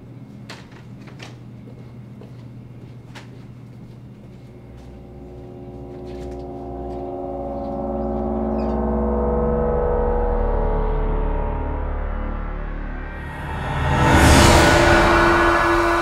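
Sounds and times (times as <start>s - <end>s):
low hum: 4.0s - 16.0s
gong-like drone: 4.5s - 16.0s.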